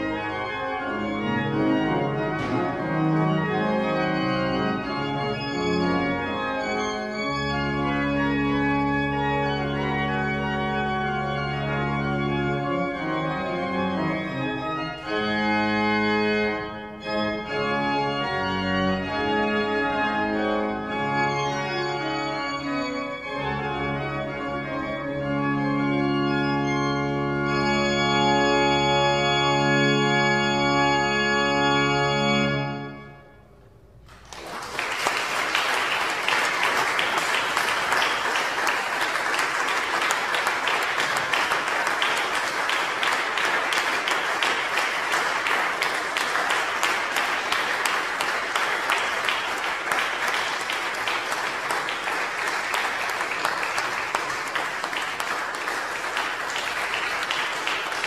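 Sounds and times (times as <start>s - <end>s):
pipe organ chord: 0.0s - 34.0s, 34.8s - 58.0s
audience applause: 34.1s - 58.0s.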